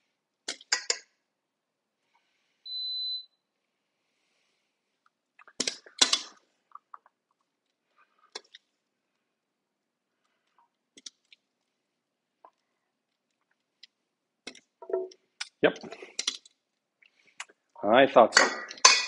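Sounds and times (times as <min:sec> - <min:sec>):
short electronic beep: 0:02.7 - 0:03.3
metal tongs clacking against bowl: 0:18.4 - 0:19.0.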